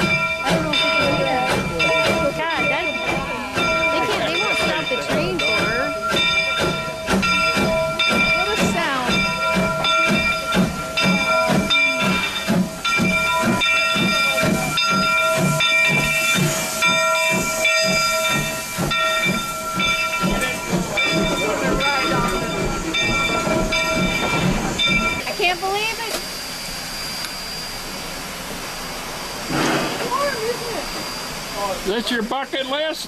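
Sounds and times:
rhythmic pulsing beat: 0.0s - 25.2s
steam locomotive hissing: 0.0s - 33.0s.

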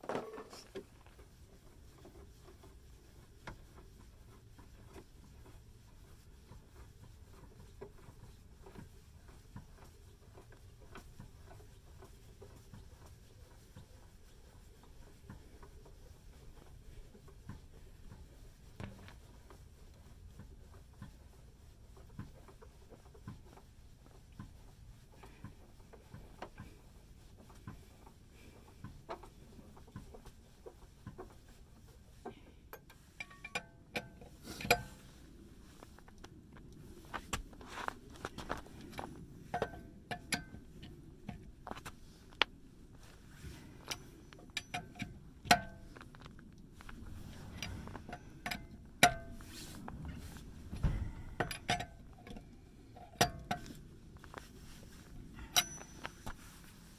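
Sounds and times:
low steady rumble: 0.0s - 56.9s
metal tool clicks and clinks: 55.4s - 56.3s.

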